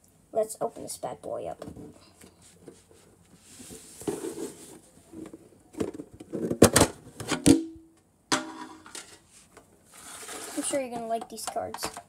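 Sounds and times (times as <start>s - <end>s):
soft scraping and rustling: 1.6s - 6.1s, 8.7s - 11.3s.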